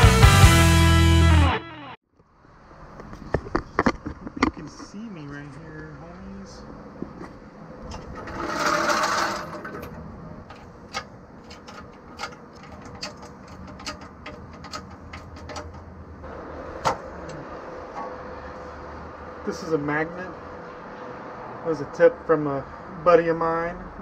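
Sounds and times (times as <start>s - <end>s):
jack scraping across concrete: 7.8s - 15.9s
ratchet clicking: 8.0s - 15.9s.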